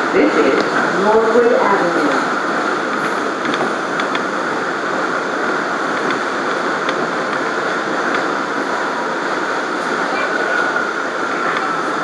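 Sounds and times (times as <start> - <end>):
train wheels on rail: 0.0 - 12.0.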